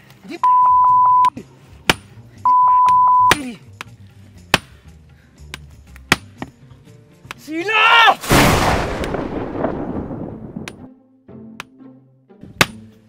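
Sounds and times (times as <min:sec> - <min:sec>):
explosion boom with rumble: 0:08.2 - 0:10.9.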